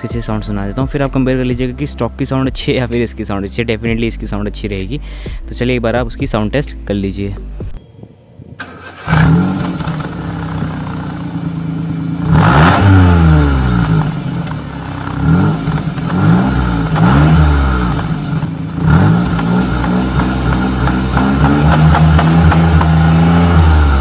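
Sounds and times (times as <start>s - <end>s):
car engine idling and revving: 8.6s - 24.0s.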